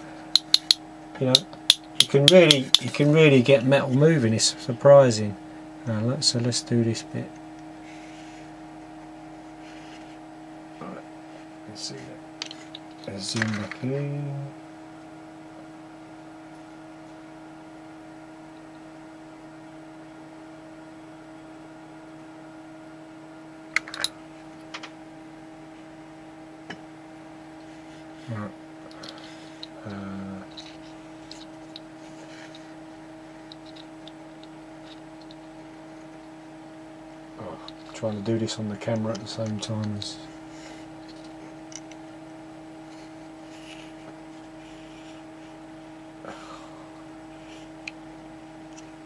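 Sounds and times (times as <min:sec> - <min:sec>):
electrical hum: 0:00.0 - 0:49.0
sharp clicks: 0:00.4 - 0:02.9.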